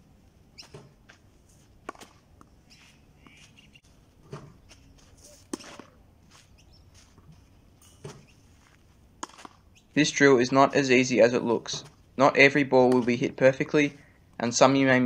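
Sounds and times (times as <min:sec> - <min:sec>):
footsteps scuffing on clay: 0:00.6 - 0:09.8
tennis balls knocked with wooden stick: 0:09.2 - 0:09.6.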